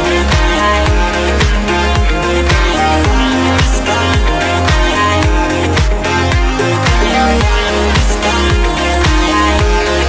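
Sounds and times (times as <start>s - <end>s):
electronic music with kick drum: 0.0s - 10.0s.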